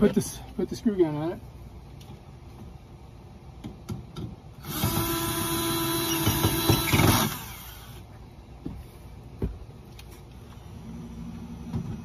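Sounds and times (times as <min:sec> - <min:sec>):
cordless screw gun whining: 0:04.6 - 0:08.0.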